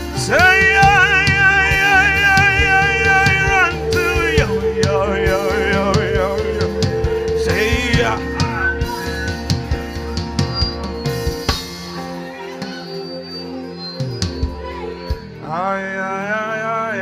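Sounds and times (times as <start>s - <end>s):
man singing: 0.0s - 9.2s, 15.3s - 17.0s
band playing with drum beat: 0.0s - 13.0s.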